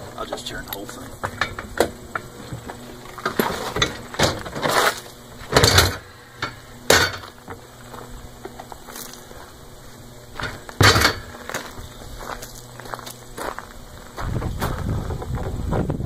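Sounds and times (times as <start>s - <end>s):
cart scraping on gravel: 2.2s - 5.9s
cart thud: 10.4s - 11.3s.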